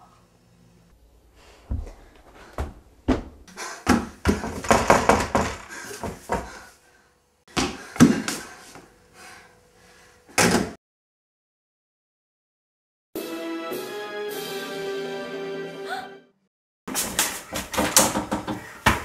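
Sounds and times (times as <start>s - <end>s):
thumps and knocks: 1.7s - 6.6s, 17.5s - 19.0s.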